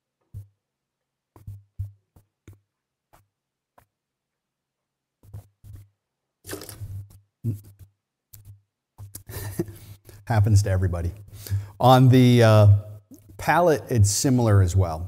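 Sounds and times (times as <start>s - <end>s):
spitting into metal bucket: 6.5s - 7.0s
slurping and mouth smacks: 6.5s - 7.7s.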